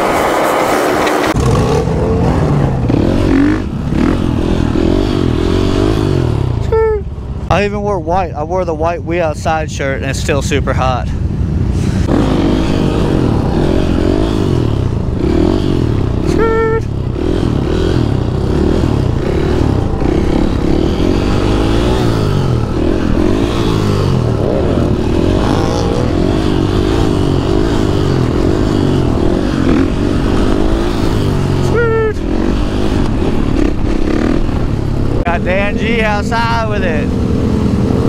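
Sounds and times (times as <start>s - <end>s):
dirt bike engine revving: 0.0s - 6.7s, 11.8s - 38.0s.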